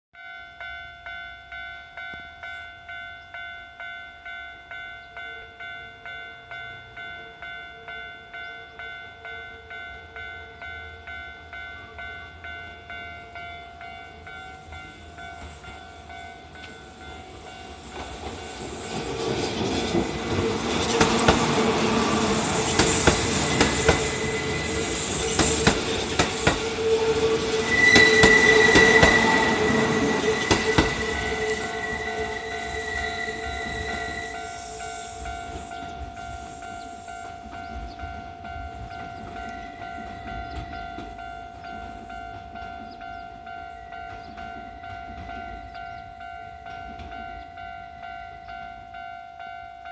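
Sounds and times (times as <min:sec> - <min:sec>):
level-crossing bell ringing: 0:00.2 - 0:49.9
train rail clatter: 0:14.3 - 0:43.3, 0:43.9 - 0:47.8
high wheel squeal: 0:21.1 - 0:37.2.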